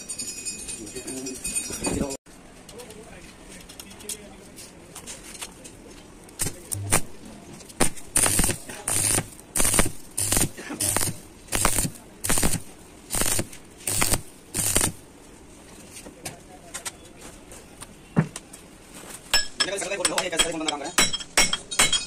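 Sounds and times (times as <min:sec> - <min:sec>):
welder humming: 0:06.4 - 0:07.2, 0:07.8 - 0:15.0
welding arc hissing: 0:06.4 - 0:07.2, 0:07.8 - 0:15.0.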